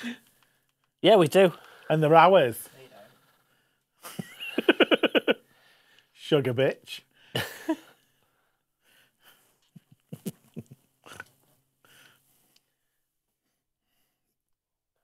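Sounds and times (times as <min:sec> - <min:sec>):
faint breathing: 0:00.0 - 0:00.8, 0:01.5 - 0:02.0, 0:02.6 - 0:04.0, 0:05.4 - 0:06.2, 0:07.1 - 0:09.9, 0:11.1 - 0:14.3.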